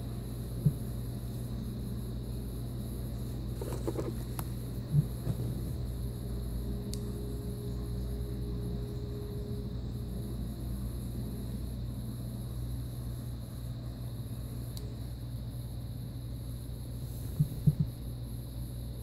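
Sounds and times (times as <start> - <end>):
steady low hum: 0.0 - 19.0
laptop handling: 3.6 - 5.5.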